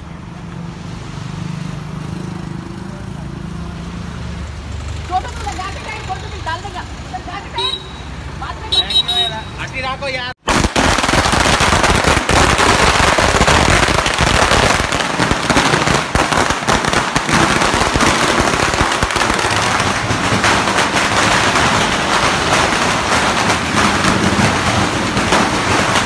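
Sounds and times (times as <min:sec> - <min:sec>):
firecrackers crackling: 0:10.4 - 0:26.0.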